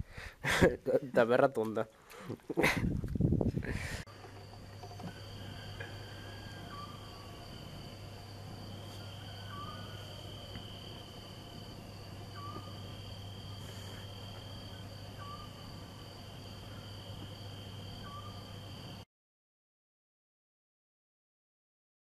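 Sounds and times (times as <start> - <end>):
low hum: 3.6 - 19.0
crickets trilling: 3.8 - 19.0.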